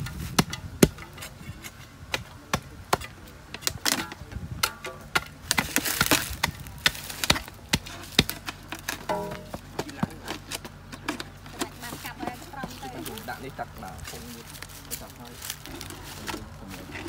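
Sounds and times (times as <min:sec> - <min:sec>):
steel bar knocking into soil: 0:07.8 - 0:09.6.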